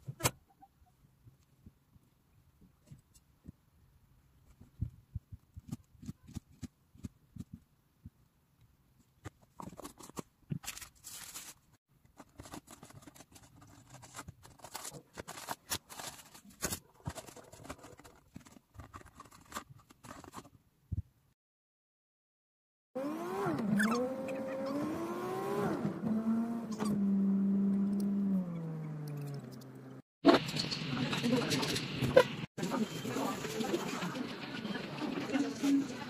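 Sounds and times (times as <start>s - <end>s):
cardboard boxes and wrapping rustling: 9.4s - 20.5s.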